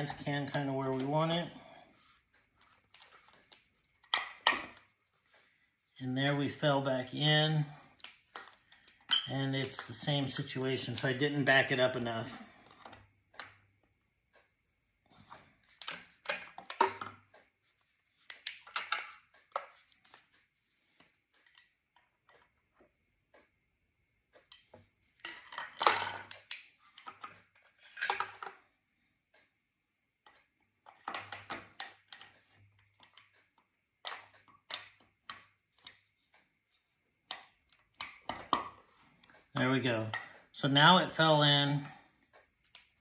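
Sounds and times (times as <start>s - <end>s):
metal clicks and clatter: 24.4s - 28.6s.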